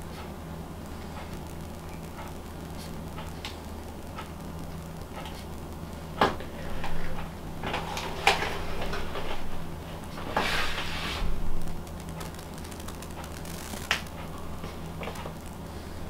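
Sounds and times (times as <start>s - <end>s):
steady low hum: 0.0s - 16.0s
sharp clicks: 11.6s - 14.3s.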